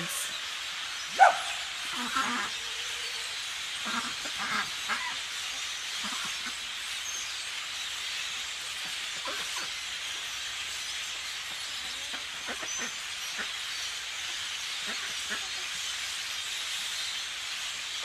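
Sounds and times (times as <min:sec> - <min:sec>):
flock of blackbirds chattering: 0:00.0 - 0:18.0
single bird calls: 0:01.0 - 0:05.2.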